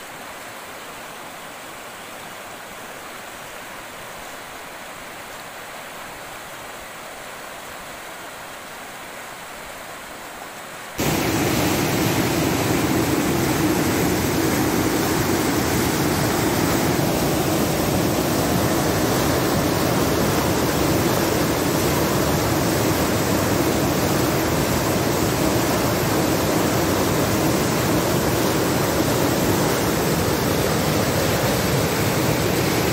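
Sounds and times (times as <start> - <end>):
flood water rushing: 11.0 - 32.9.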